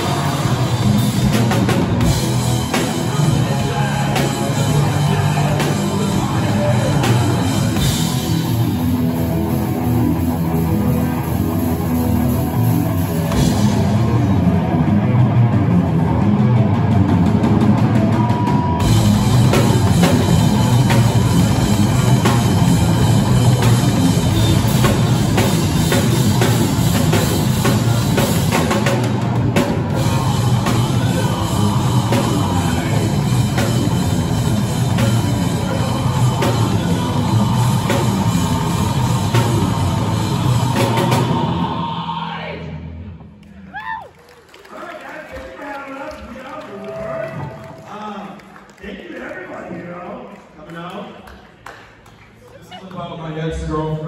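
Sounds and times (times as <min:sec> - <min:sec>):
live rock band playing: 0:00.0 - 0:42.1.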